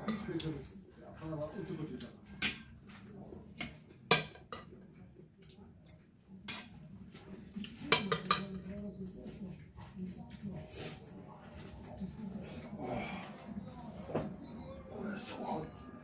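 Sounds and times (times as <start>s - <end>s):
cutlery clinking on plates: 2.0s - 4.8s, 6.4s - 6.8s, 7.7s - 8.7s.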